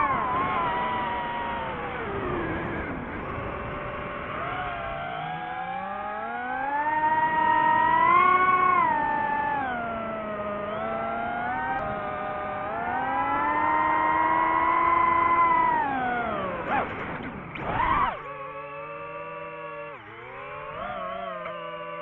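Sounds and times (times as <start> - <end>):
drone propellers whining: 0.0 - 22.0.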